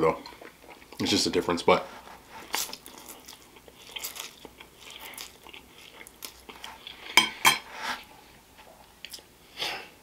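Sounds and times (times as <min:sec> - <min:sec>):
person chewing pasta: 0:02.4 - 0:07.4, 0:08.9 - 0:09.9.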